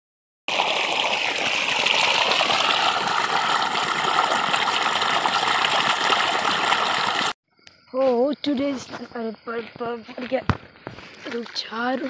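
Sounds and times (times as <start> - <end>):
water gushing from a pipe: 0.5 - 7.4.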